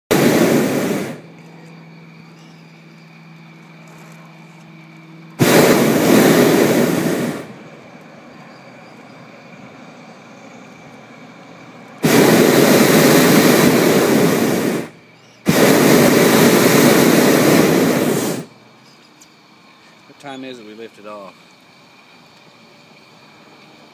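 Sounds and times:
low hum: 0:00.1 - 0:18.7
propane burner roaring: 0:00.1 - 0:23.9.

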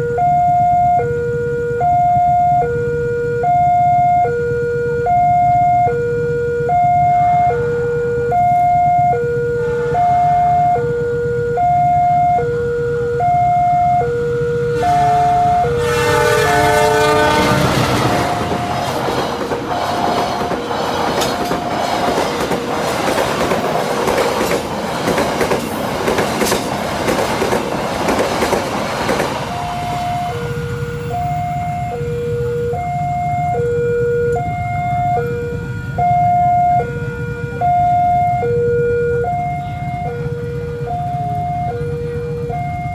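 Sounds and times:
two-tone crossing alarm: 0:00.0 - 0:28.6, 0:29.2 - 0:42.9
locomotive horn: 0:01.0 - 0:20.6, 0:29.4 - 0:42.9
train wheels clattering on rails: 0:17.2 - 0:31.1.

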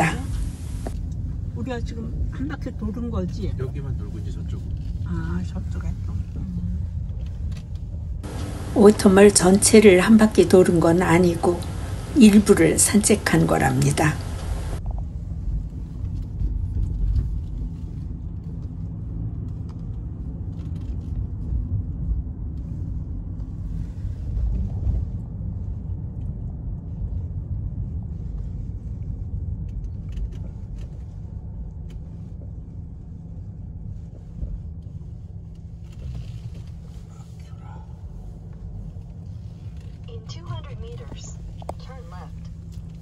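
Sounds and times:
car engine rumble: 0:00.0 - 0:43.0
road noise inside car: 0:00.0 - 0:43.0.

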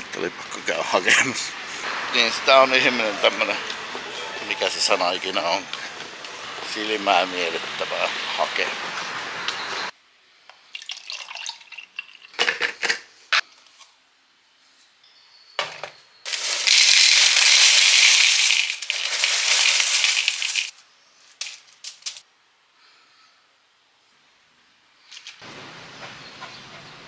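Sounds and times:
cereal pouring into plastic bowl: 0:16.3 - 0:20.7
handling knocks and rustles: 0:21.3 - 0:22.2.

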